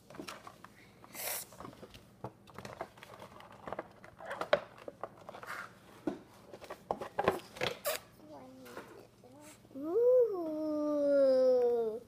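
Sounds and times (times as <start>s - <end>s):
cardboard and plastic rustling: 1.5s - 7.9s.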